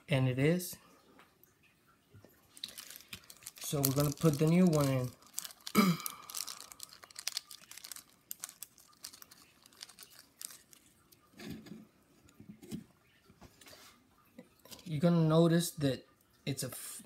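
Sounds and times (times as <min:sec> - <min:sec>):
plastic bag crinkling: 0:02.5 - 0:11.7.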